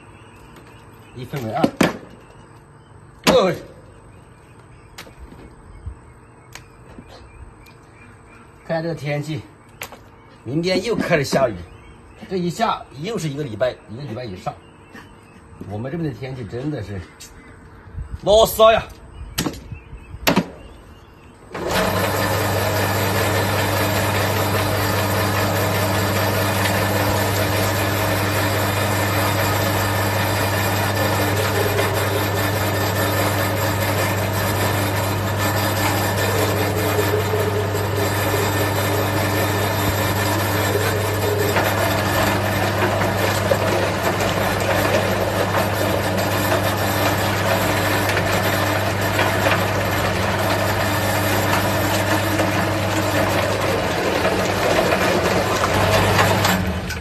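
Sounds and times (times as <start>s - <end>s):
electric meat grinder humming: 21.6s - 57.0s.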